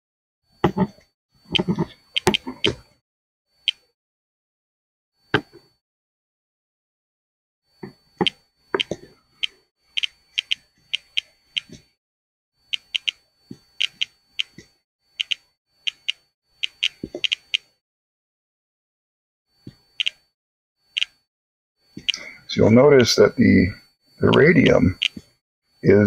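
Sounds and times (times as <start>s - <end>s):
radiation detector clicking and beeping: 0.6s - 4.0s, 7.7s - 12.0s, 12.6s - 17.8s, 19.6s - 26.0s.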